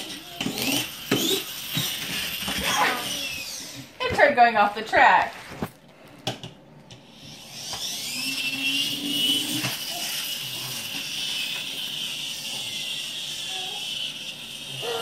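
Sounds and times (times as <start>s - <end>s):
toy electric motor whine: 0.0s - 3.9s, 7.0s - 15.0s.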